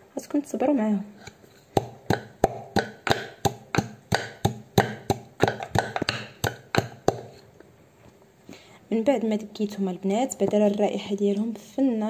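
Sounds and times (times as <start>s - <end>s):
pestle pounding in wooden mortar: 1.7s - 7.4s.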